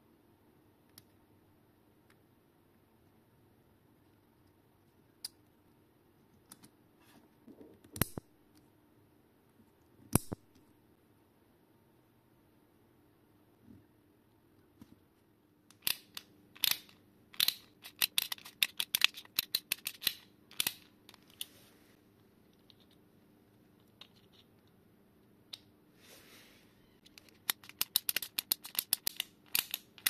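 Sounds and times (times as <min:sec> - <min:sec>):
plastic ratchet screwdriver clicking: 0:15.8 - 0:20.8.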